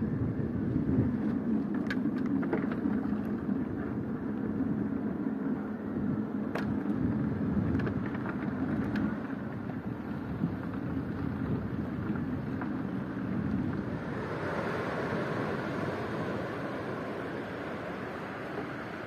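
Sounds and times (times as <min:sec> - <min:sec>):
ocean surf rumbling: 0:07.2 - 0:19.0.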